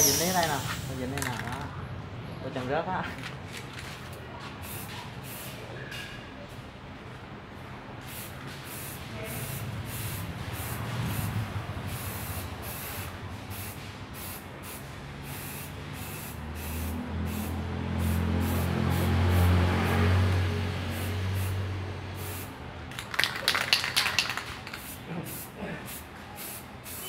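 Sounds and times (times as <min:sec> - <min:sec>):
spray paint can hissing: 0:00.0 - 0:01.6, 0:04.6 - 0:05.6, 0:08.0 - 0:19.6, 0:20.9 - 0:27.0.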